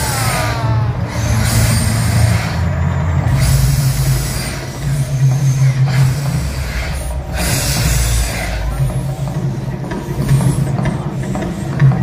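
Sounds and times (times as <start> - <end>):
hissing roars of flame bursts: 0.0 - 9.2.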